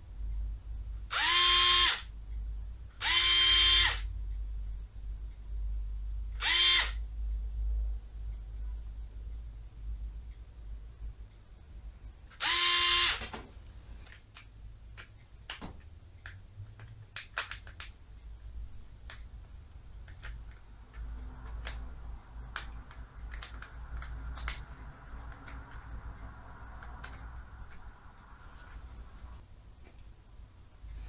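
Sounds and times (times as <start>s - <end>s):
electric screwdriver motor whine: 1.1s - 2.0s, 3.0s - 4.0s, 6.4s - 7.0s, 12.4s - 13.2s.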